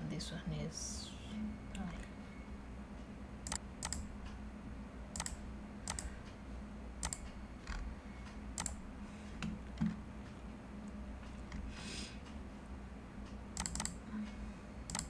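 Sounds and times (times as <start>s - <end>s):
faint low hum: 0.0s - 15.0s
computer input clicks: 3.4s - 4.1s, 5.2s - 6.1s, 7.0s - 7.8s, 8.6s - 8.8s, 13.6s - 14.0s.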